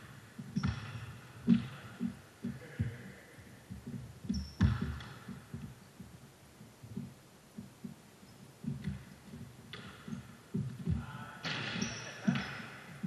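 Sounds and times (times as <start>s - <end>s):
basketball bouncing on gym floor: 0.0s - 3.0s, 3.6s - 6.2s, 8.6s - 13.0s
players' footsteps: 0.0s - 13.0s.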